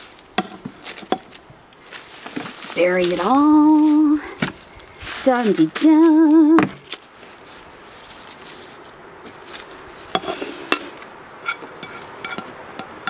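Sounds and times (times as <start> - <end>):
hand rake scratching compost: 0.0 - 13.0
taps and scrapes on a plate: 0.4 - 1.3, 10.2 - 10.8, 11.4 - 13.0.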